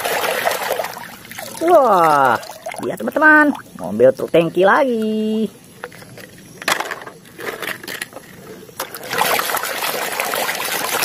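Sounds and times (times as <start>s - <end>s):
water sloshing and splashing in a basin: 0.0s - 4.1s, 8.8s - 11.0s.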